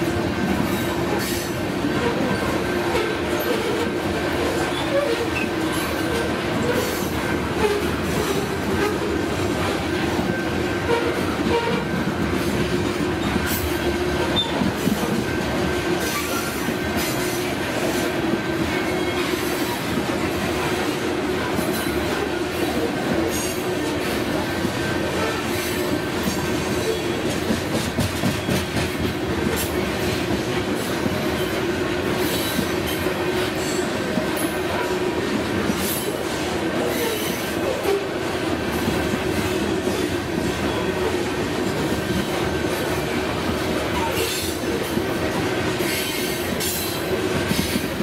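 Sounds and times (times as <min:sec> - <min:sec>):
train wheels rolling on rail: 0:00.0 - 0:48.0.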